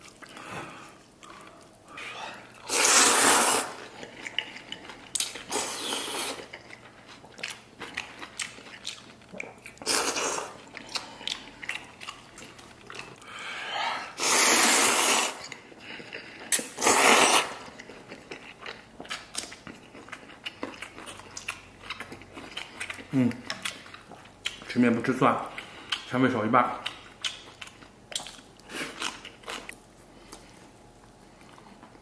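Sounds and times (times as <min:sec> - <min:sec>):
wet chewing: 0:02.5 - 0:13.4, 0:14.2 - 0:24.8, 0:25.5 - 0:26.1, 0:26.8 - 0:32.0
person slurping noodles: 0:02.6 - 0:03.9, 0:05.5 - 0:06.5, 0:09.8 - 0:10.6, 0:14.0 - 0:15.5, 0:16.5 - 0:17.7.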